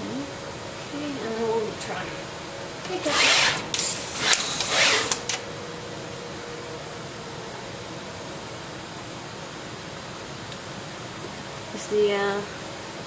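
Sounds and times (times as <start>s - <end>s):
steady hiss: 0.0s - 13.0s
machine mechanical bursts: 2.8s - 5.5s.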